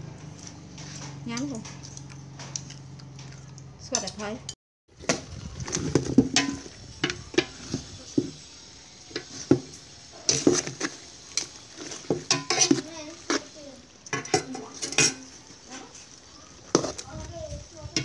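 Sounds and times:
metal tongs clinking on pot: 3.9 - 4.6, 9.1 - 13.4, 14.1 - 16.0
sauce sizzling: 4.9 - 18.0.

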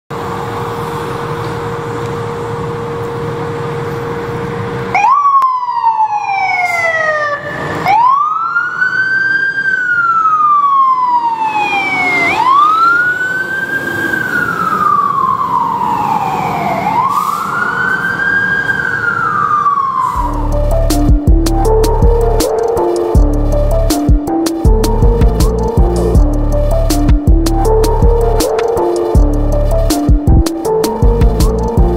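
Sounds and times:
fire engine humming: 0.1 - 31.9
siren wailing: 1.2 - 31.9.

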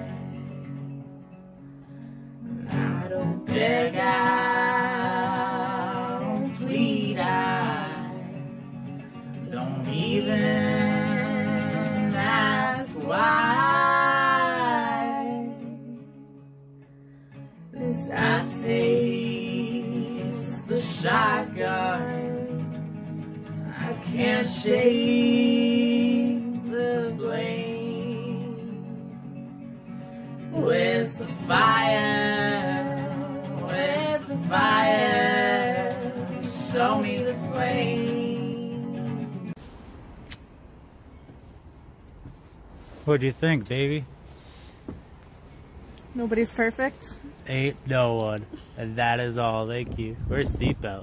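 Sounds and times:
acoustic guitar: 0.0 - 51.0
woman singing: 2.6 - 8.8, 9.5 - 16.4, 17.7 - 29.4, 30.4 - 39.5.

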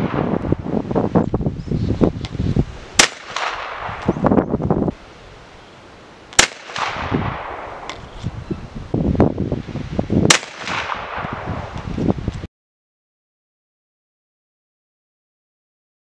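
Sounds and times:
wind buffeting microphone: 0.0 - 5.4, 6.8 - 12.5
rifle shots: 3.0 - 4.4, 6.4 - 8.0, 10.3 - 11.7.

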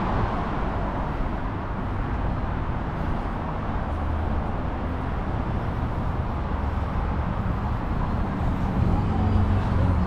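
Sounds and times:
road traffic noise: 0.0 - 10.0.

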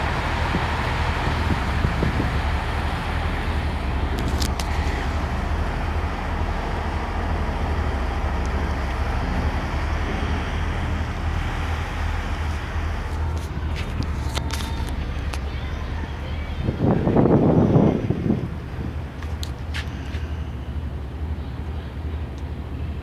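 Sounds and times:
boat diesel engine drone: 0.0 - 23.0
wind and sea rushing: 0.0 - 23.0.

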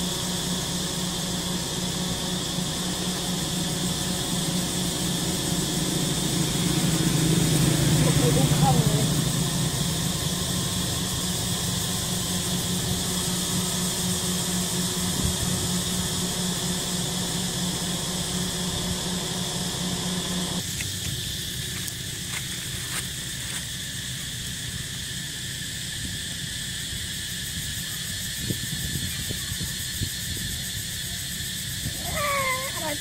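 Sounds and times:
low hum: 0.0 - 23.3
forest insects droning: 0.0 - 33.0.

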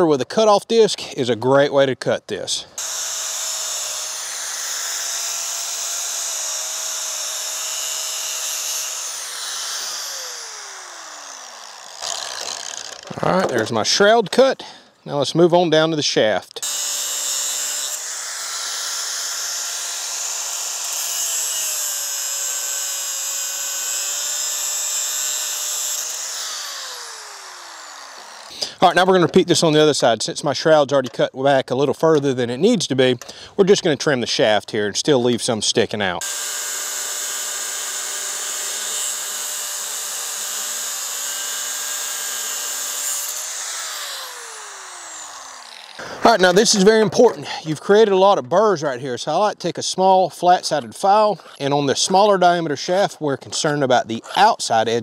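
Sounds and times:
motor winding down: 2.8 - 13.6, 16.6 - 28.6, 36.2 - 46.7
angle grinder cutting metal: 2.8 - 14.3, 16.6 - 29.8, 36.2 - 53.7.

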